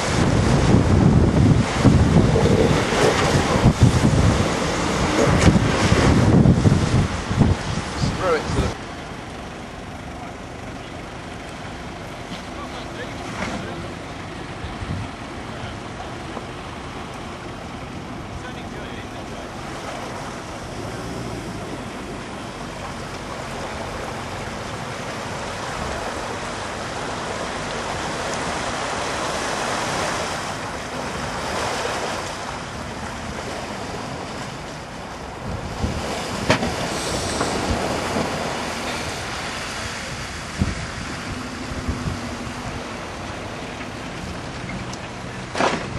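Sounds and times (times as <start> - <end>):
wind noise on microphone: 0.0 - 8.8, 14.6 - 15.2, 33.3 - 44.9
truck engine working: 0.0 - 45.9.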